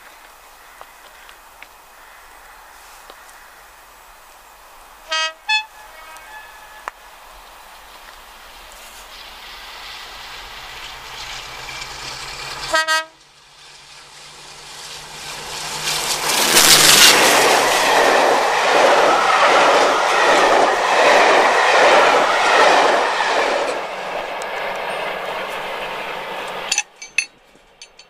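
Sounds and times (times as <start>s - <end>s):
diesel locomotive passing: 0.0s - 28.0s
train wheels clattering over rail joints: 7.9s - 18.4s, 22.8s - 28.0s.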